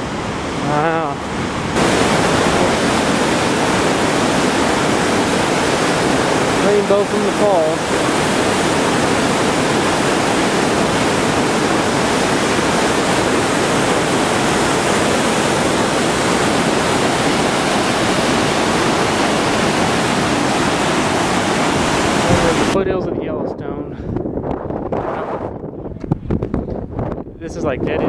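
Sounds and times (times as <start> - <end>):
waterfall rushing: 0.0 - 22.8.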